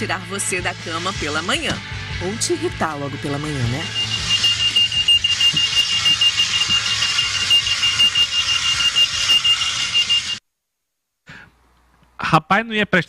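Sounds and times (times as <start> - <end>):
shrill pulsed alarm clock beeping: 3.3 - 10.4.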